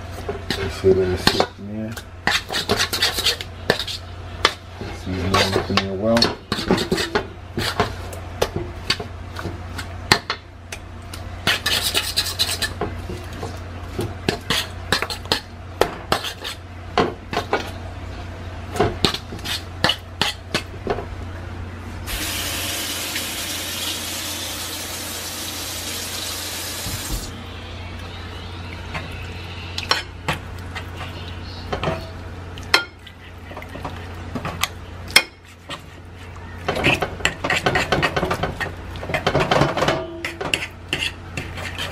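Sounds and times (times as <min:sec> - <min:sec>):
low hum: 0:24.3 - 0:32.6.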